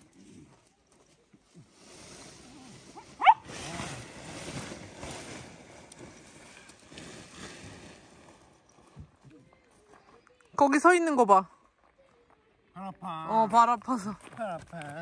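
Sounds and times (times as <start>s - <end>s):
tent fabric rustling on gravel: 0.0s - 10.6s
small dog yelping: 3.2s - 3.5s.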